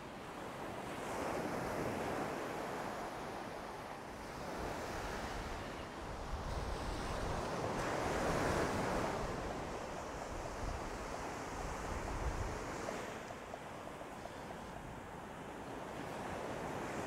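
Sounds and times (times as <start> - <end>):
wind on microphone: 4.2 - 13.3.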